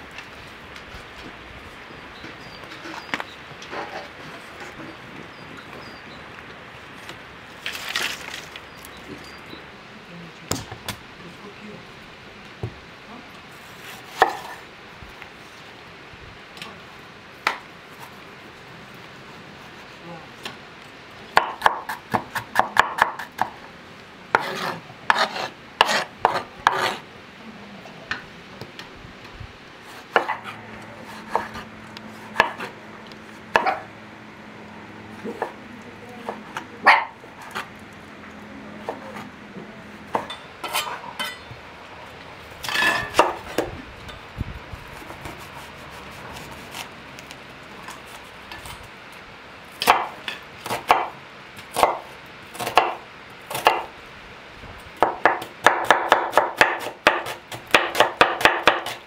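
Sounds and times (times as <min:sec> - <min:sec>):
knife chopping on wooden board: 0:31.1 - 0:31.6, 0:32.4 - 0:32.7, 0:49.8 - 0:51.1, 0:52.6 - 0:53.9, 0:55.0 - 0:59.0.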